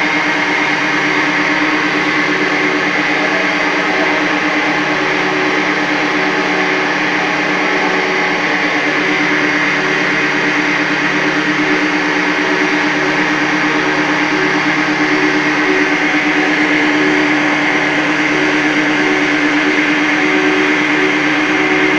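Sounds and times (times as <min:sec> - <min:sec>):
recycling machinery drone: 0:00.0 - 0:21.9.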